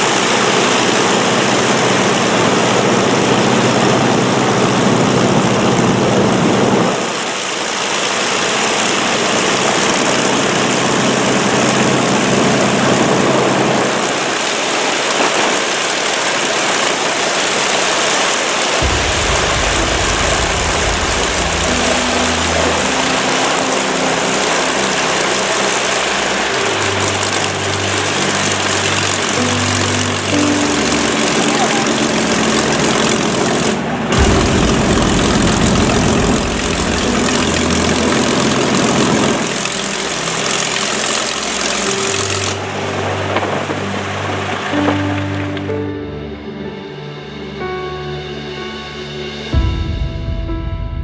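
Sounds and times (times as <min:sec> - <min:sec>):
propeller aircraft engines droning: 0:00.0 - 0:46.3
orchestral background music: 0:17.0 - 0:51.0.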